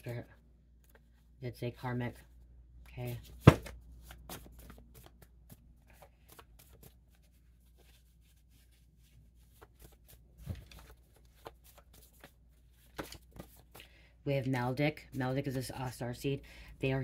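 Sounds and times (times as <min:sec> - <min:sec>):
cards shuffling and rustling: 0:03.0 - 0:14.0.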